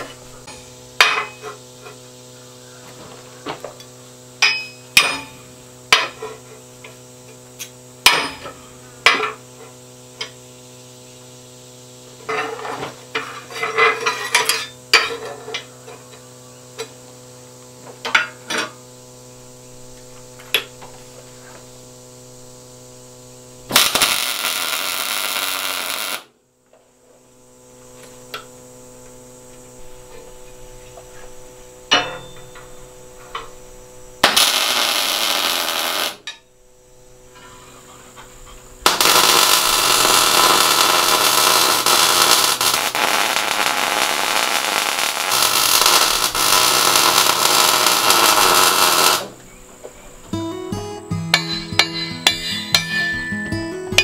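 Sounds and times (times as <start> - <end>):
steady hum: 0.0 - 54.0
welder arcing crackle: 23.4 - 26.3, 34.2 - 36.4, 38.4 - 49.5.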